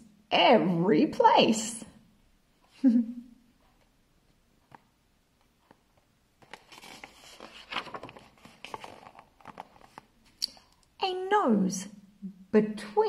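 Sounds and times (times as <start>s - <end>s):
paper pages rustling: 6.4s - 10.4s.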